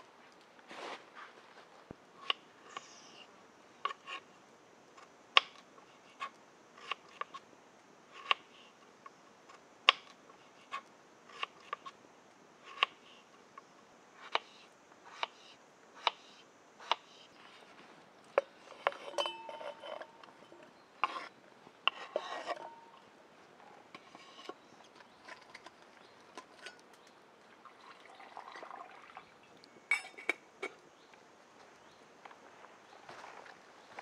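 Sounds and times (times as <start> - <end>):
rustling: 0.0 - 2.0, 17.4 - 23.1
knife peeling potato: 6.0 - 7.4, 9.9 - 12.0, 14.2 - 17.2.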